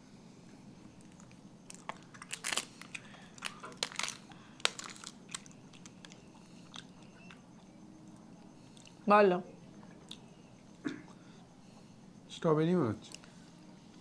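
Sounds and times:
soft chewing: 0.8 - 9.0, 9.6 - 11.4
plastic cup crinkling: 1.0 - 6.8.

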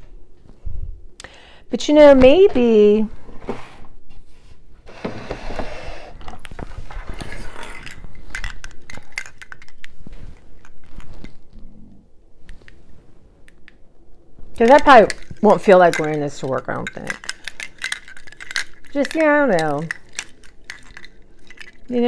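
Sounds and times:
rustling: 6.2 - 13.6
plastic bulbs clicking and rattling: 7.2 - 10.0, 14.6 - 22.0.

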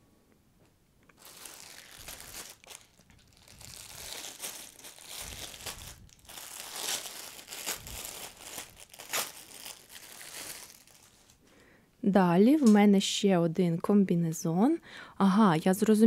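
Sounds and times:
plastic bag crinkling: 1.1 - 11.4.

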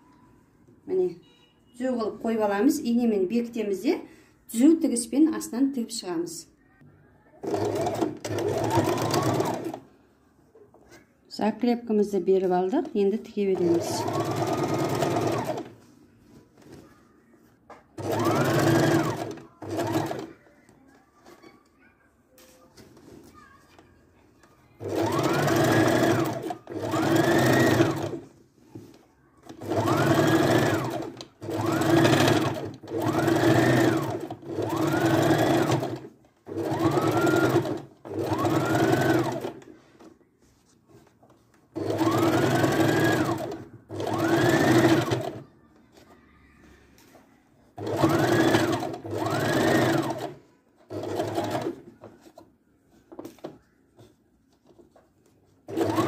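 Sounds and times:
sewing machine motor whine: 18.0 - 20.3, 24.9 - 28.2, 29.6 - 36.0, 36.6 - 39.5, 41.9 - 45.4, 47.8 - 50.3.

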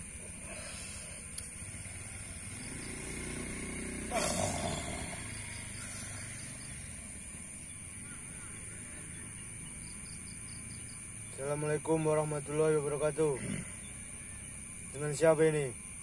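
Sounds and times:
man groaning: 4.1 - 5.2.

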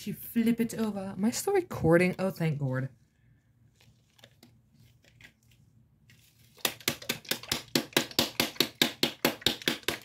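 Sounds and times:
rapid sharp taps: 6.6 - 10.0.

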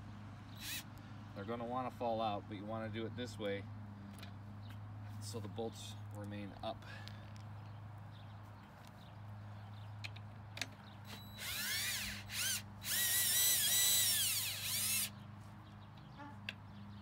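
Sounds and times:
cordless drill spinning: 0.5 - 0.9, 11.1 - 15.1.

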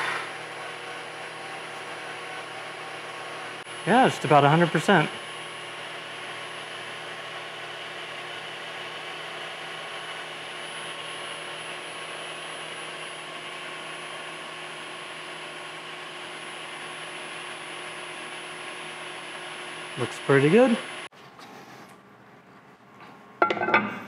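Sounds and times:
milling machine cutting metal: 0.0 - 21.1.

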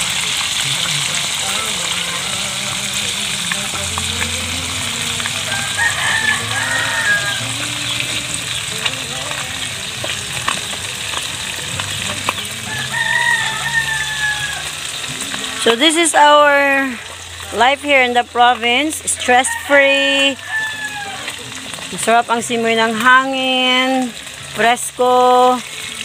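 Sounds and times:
fish sizzling in oil: 0.0 - 26.0
rooster crowing: 5.3 - 8.6, 12.3 - 15.1, 19.0 - 21.4.

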